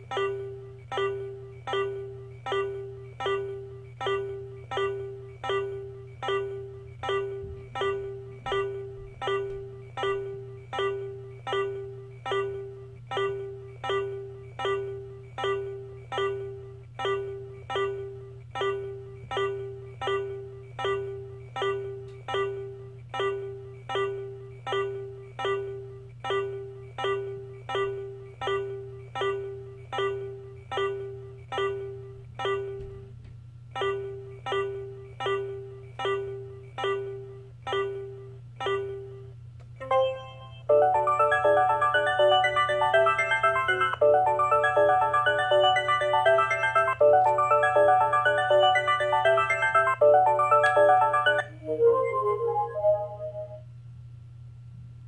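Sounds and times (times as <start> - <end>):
toy alarm clock chime: 39.8 - 51.5.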